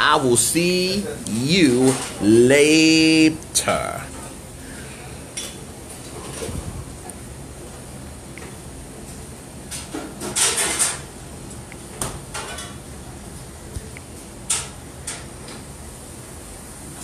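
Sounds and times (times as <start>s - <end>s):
room hum: 0.0s - 17.0s
dishes and utensils clattering: 9.7s - 11.1s.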